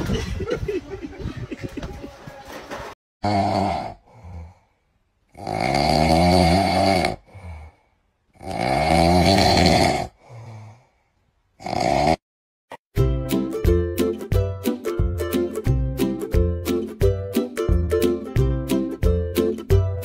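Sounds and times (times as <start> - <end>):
dog snoring loudly: 5.3 - 7.2, 8.4 - 10.2, 11.6 - 12.2.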